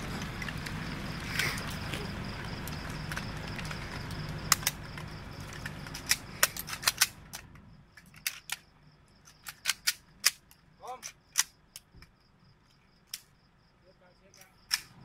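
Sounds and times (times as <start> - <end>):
low hum: 0.0 - 9.3
rifles clicking metallically: 2.6 - 11.9, 14.3 - 15.0.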